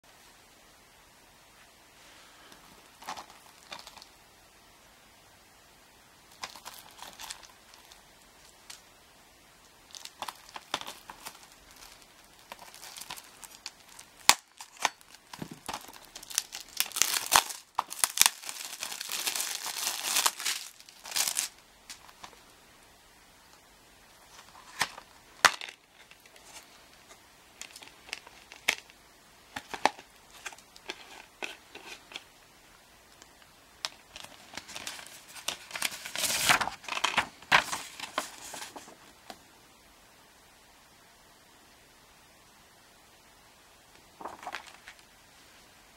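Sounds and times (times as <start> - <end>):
plastic shrink wrap tearing: 9.9 - 22.2, 34.1 - 38.7.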